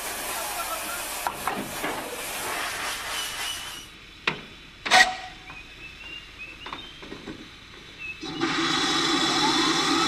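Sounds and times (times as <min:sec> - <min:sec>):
steam locomotive hissing steam: 0:00.0 - 0:04.2, 0:07.4 - 0:10.0.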